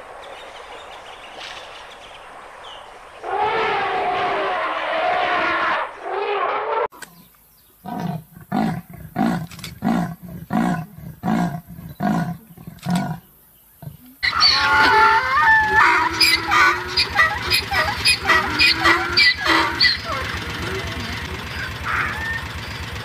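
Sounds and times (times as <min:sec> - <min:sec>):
elephant call: 0:03.2 - 0:08.8, 0:13.8 - 0:23.0
leopard rasping grunts: 0:07.2 - 0:14.2
donkey braying: 0:07.8 - 0:22.9.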